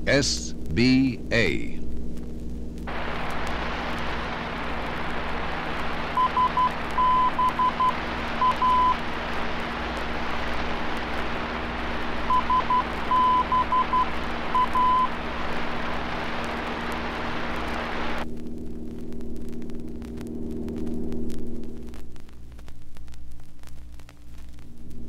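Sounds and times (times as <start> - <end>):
steady radio hiss: 0.0 - 25.0
morse code beeping tone: 6.2 - 9.0, 12.3 - 15.1.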